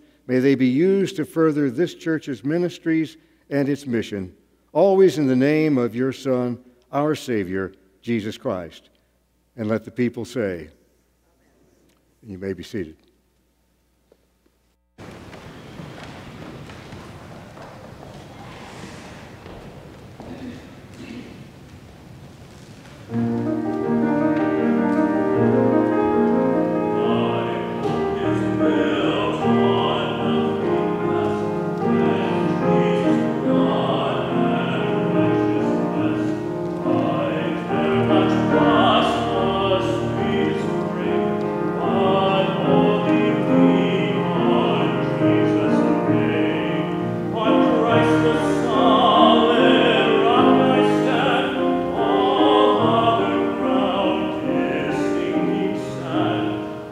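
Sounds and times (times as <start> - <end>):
piano: 15.0 - 56.9
man singing with vibrato: 23.2 - 56.9.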